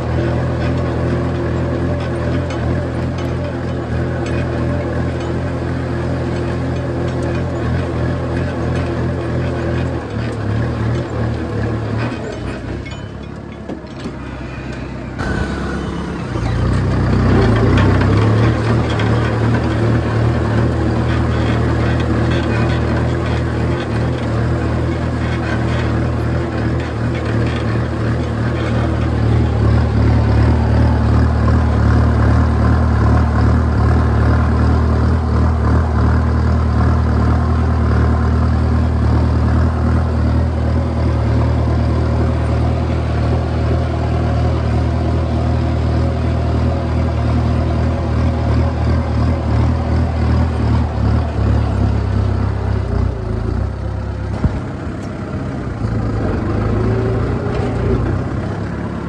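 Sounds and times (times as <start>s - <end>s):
tractor diesel engine under load: 0.0s - 59.0s.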